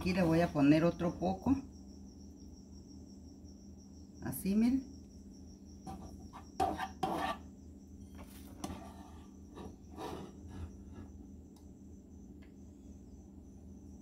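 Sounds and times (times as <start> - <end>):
spatula scraping frying pan: 5.9 - 7.5, 8.5 - 11.1.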